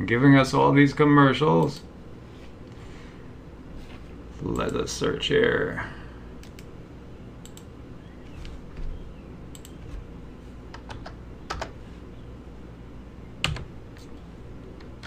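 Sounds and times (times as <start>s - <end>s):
low steady hum: 0.0s - 15.0s
keyboard keys clicking: 10.7s - 11.8s.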